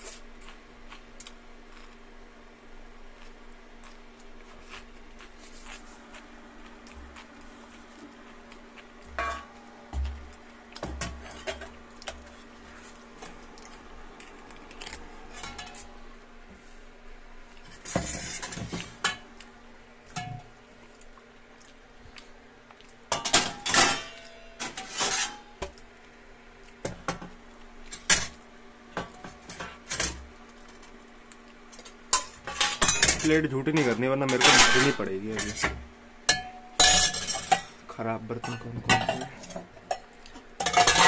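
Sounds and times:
steady low hum: 0.0 - 41.0
metal dishes clinking and clattering: 9.1 - 9.6, 10.8 - 12.2, 15.3 - 15.9, 23.1 - 25.4, 32.2 - 37.8, 38.4 - 41.0.

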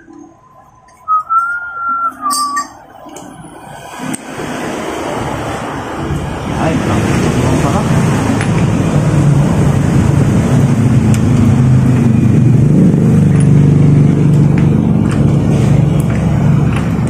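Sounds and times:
vehicle engine running: 3.4 - 17.0.

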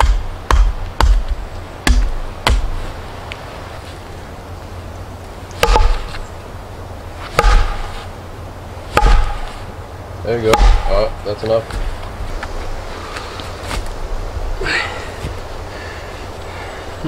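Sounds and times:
hatchet chopping wood: 0.0 - 2.8, 5.6 - 6.2, 7.3 - 8.1, 8.9 - 9.6, 10.4 - 11.9
heavy knocks with ringing tone: 5.6 - 6.2, 7.4 - 8.0, 8.9 - 9.5, 10.5 - 11.1.

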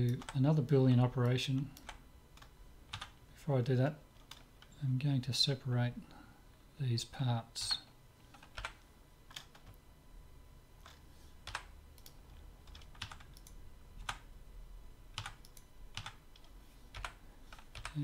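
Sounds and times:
keyboard and mouse clicks: 10.8 - 14.3, 15.2 - 18.0.

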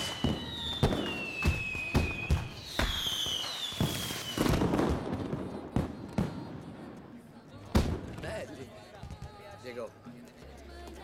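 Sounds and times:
fireworks bangs: 0.0 - 6.9.

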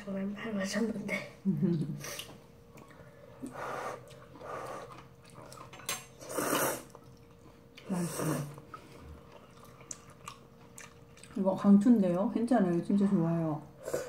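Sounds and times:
noodles being slurped: 3.9 - 11.4.

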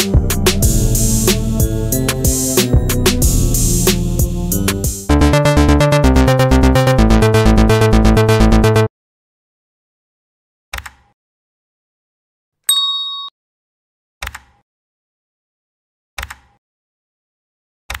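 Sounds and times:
notification bell chime: 12.7 - 13.3.

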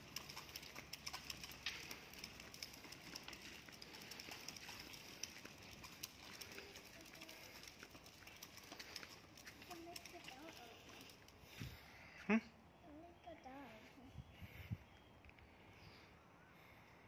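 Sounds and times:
stroller wheels rattling on concrete: 0.0 - 12.0.

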